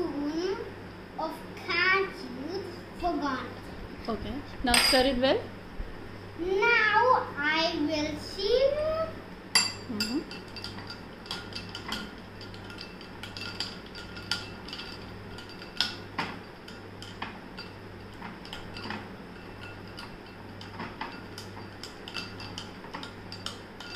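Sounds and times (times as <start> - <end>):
spoon clinking against glass: 9.6 - 17.8.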